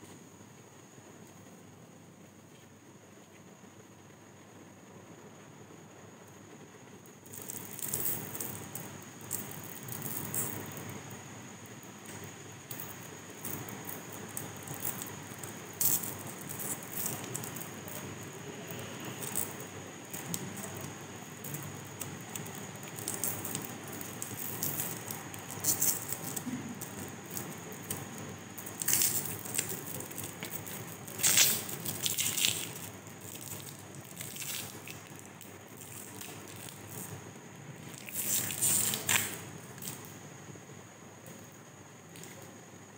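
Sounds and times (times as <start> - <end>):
foil wrapper crinkling: 12.0 - 37.2, 37.8 - 40.2.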